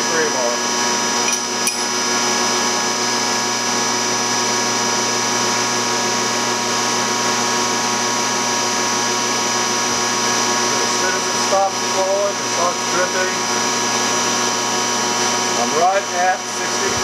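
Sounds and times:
machine hum with high whine: 0:00.0 - 0:17.0.

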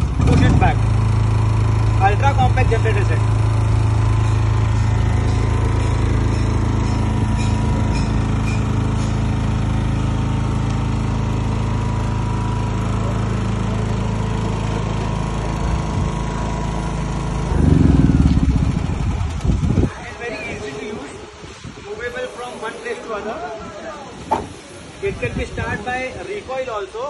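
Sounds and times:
generator engine hum: 0:00.0 - 0:20.2
louder rumble: 0:17.4 - 0:19.9.

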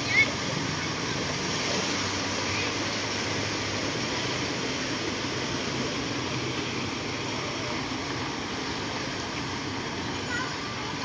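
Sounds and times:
vehicles driving through water: 0:00.0 - 0:11.0.

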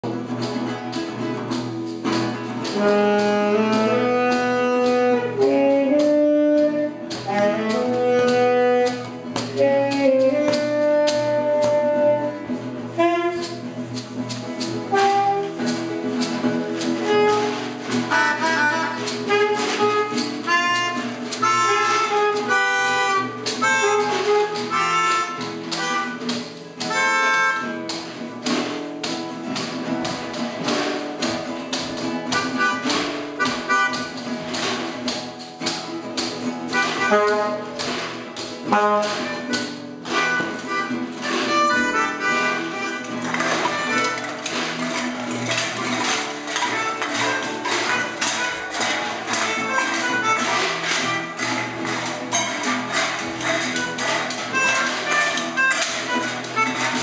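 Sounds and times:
acoustic guitar: 0:00.0 - 0:57.0
taps on tin cans and bottles: 0:00.0 - 0:57.0
melodica playing: 0:02.7 - 0:13.7, 0:16.8 - 0:28.1, 0:32.3 - 0:34.3, 0:36.6 - 0:57.0.

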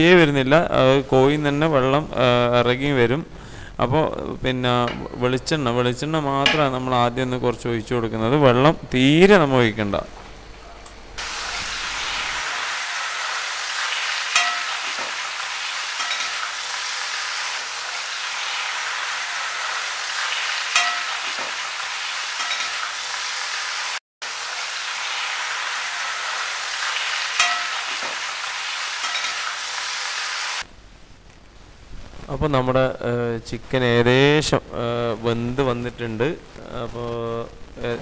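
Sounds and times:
food sizzling in oil: 0:11.2 - 0:30.7.

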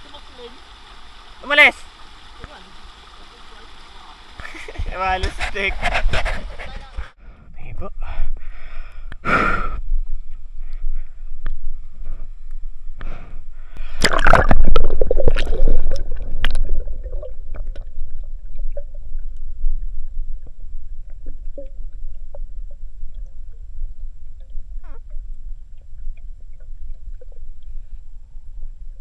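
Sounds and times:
water splashing and bubbling: 0:00.0 - 0:05.0, 0:13.8 - 0:28.4
muffled underwater rumble: 0:00.0 - 0:07.2, 0:09.6 - 0:29.0.

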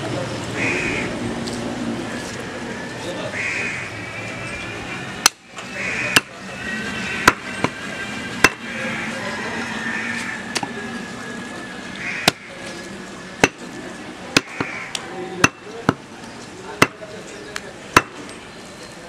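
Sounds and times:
cleaver chopping meat on wood: 0:08.4 - 0:08.6, 0:13.4 - 0:13.6, 0:14.4 - 0:14.7, 0:16.8 - 0:17.0, 0:18.0 - 0:18.2.

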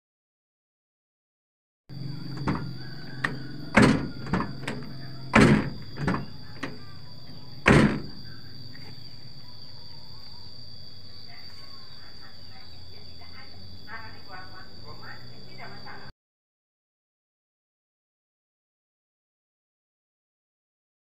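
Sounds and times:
car door shutting: 0:02.2 - 0:08.2.

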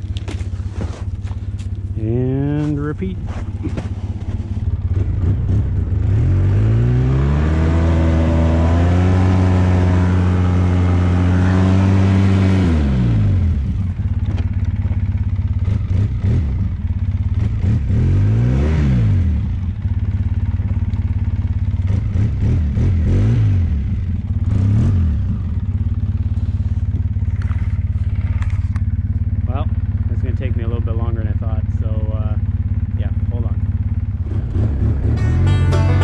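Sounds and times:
atv engine revving: 0:00.0 - 0:36.0.

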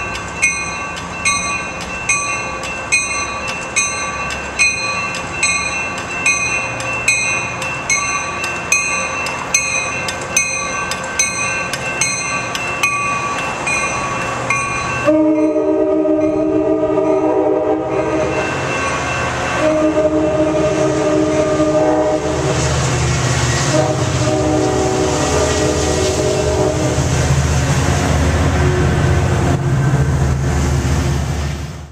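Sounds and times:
bell dinging: 0:00.0 - 0:16.5
rumble of passing train cars: 0:00.0 - 0:31.9
train air horn blasts: 0:15.0 - 0:18.4, 0:19.6 - 0:22.7, 0:23.6 - 0:27.1.

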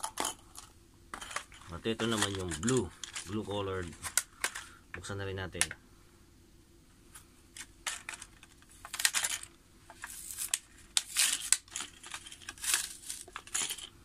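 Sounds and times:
plastic blister pack tearing: 0:10.2 - 0:13.5.

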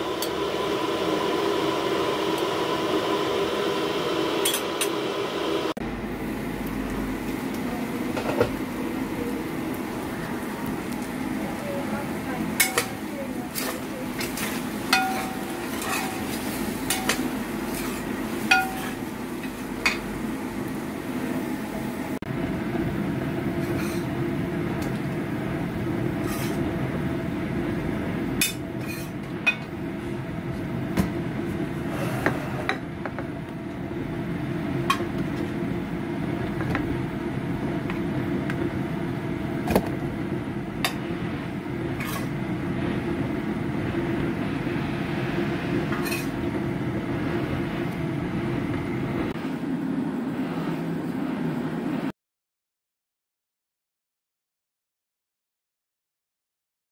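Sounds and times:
spatula scraping a steel wok: 0:12.6 - 0:19.6, 0:23.6 - 0:24.1, 0:26.2 - 0:26.7, 0:28.8 - 0:29.2, 0:42.0 - 0:42.4, 0:45.9 - 0:46.4.

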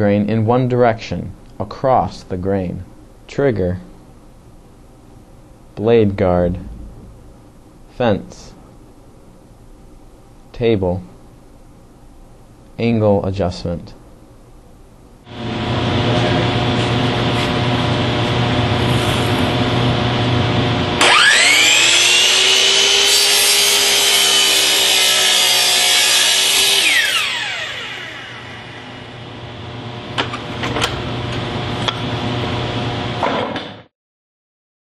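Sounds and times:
mechanical hum: 0:00.0 - 0:33.9
miter saw whining and cutting: 0:21.0 - 0:29.5.

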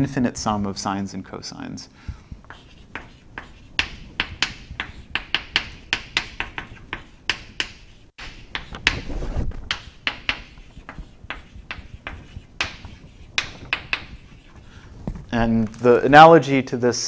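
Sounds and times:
chalk tapping and scratching: 0:02.1 - 0:15.2.

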